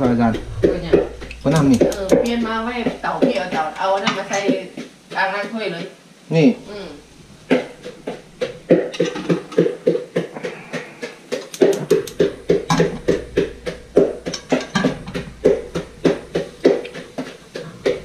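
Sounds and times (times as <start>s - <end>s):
pestle pounding in a mortar: 7.5s - 18.0s.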